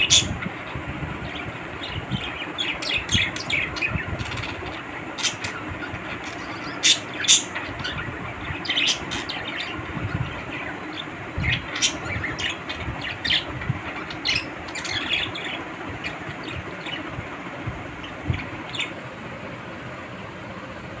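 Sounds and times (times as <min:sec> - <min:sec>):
budgerigars chirping and squawking: 0:00.0 - 0:19.0
low steady rumble: 0:00.0 - 0:21.0.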